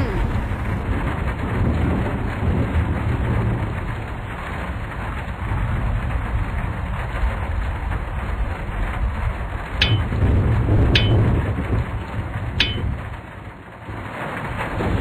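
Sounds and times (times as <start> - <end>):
storm-like rushing noise: 0.0 - 15.0.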